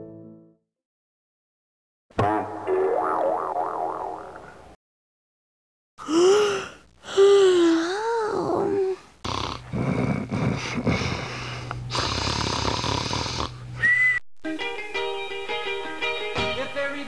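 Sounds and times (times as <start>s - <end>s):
music: 0.0s - 0.6s, 14.4s - 17.0s.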